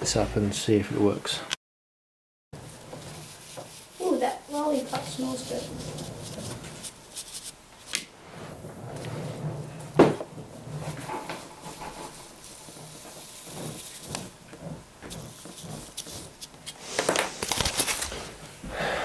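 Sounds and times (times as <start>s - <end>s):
marker pen scraping along ruler: 2.6s - 9.6s, 10.3s - 18.2s
rubbing and shuffling on tabletop: 2.6s - 18.6s
knocks on tabletop: 10.0s - 10.3s.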